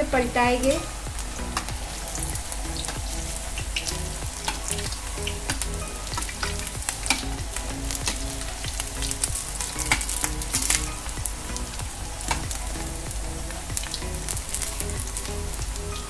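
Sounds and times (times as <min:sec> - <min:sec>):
fritters sizzling in oil: 0:00.0 - 0:16.0.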